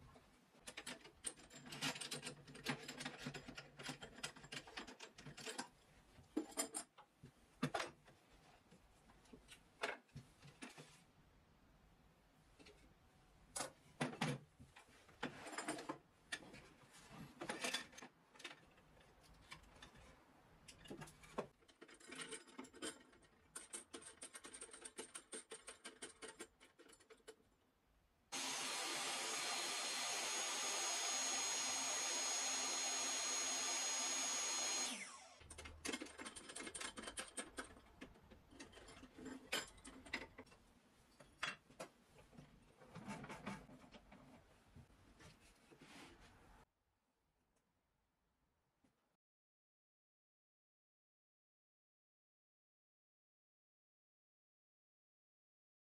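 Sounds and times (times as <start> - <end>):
power tool running with whistle: 28.4 - 35.4.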